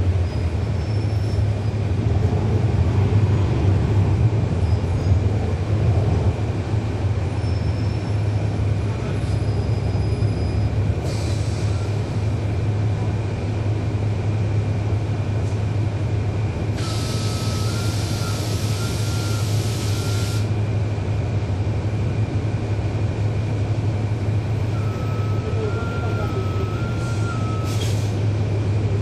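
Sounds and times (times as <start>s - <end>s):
bus diesel engine drone: 0.0s - 29.0s
air hiss: 16.8s - 20.5s.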